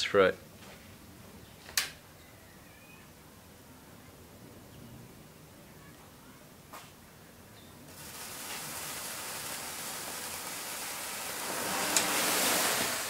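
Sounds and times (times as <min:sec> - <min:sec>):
sparkler fizzing and hissing: 0:07.9 - 0:13.0.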